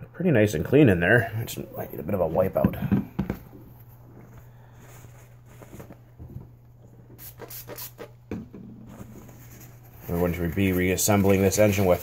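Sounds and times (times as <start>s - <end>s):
paper towel rustling and rubbing: 4.6s - 6.2s, 8.9s - 12.0s.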